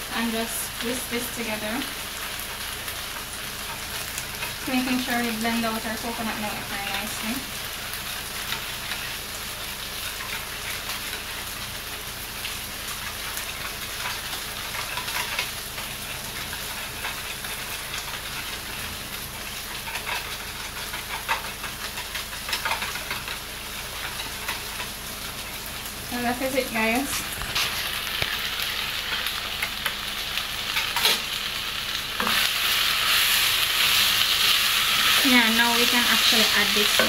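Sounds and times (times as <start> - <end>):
food sizzling in a frying pan: 0.0 - 37.0.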